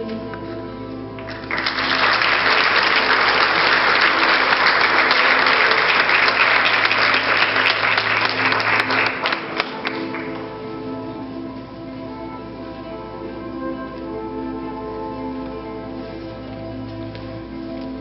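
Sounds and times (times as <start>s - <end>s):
sustained song notes: 0.0s - 18.0s
audience applauding: 1.2s - 10.8s.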